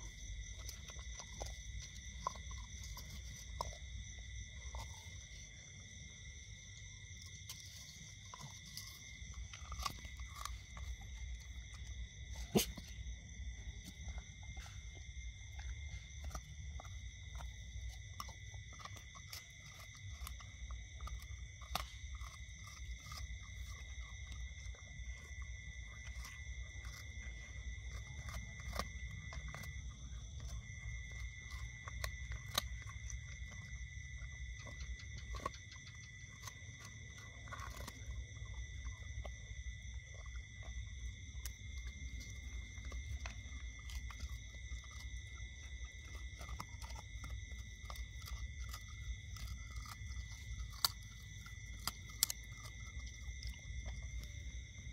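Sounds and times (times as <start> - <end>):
dog crunching bone: 0.0 - 54.9.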